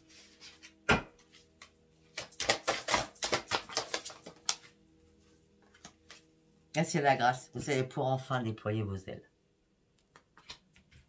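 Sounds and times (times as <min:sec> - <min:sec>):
cards shuffling: 0:00.4 - 0:04.7, 0:10.1 - 0:11.0.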